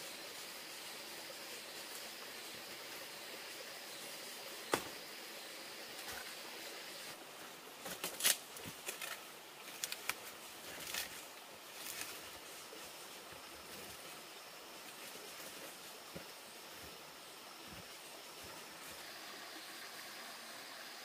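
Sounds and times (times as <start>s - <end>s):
steady outdoor hiss: 0.0s - 21.0s
rustles: 5.8s - 19.2s.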